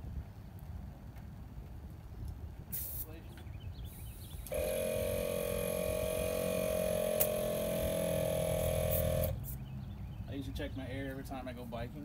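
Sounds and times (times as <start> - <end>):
air compressor humming: 4.1 - 9.6
sharp click: 7.2 - 7.4.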